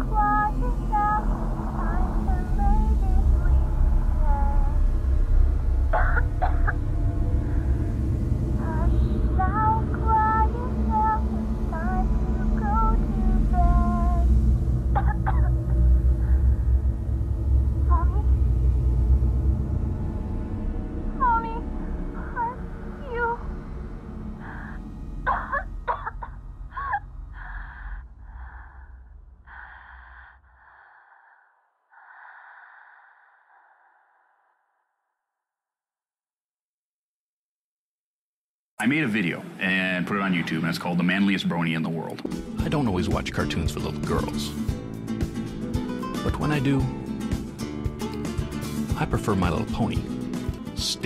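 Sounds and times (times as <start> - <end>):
high singing voice: 0.0 - 4.9, 8.5 - 14.4
low droning bass: 0.0 - 29.9
low rumble: 0.0 - 34.9
squeaky gliding vocal sounds: 14.9 - 15.8.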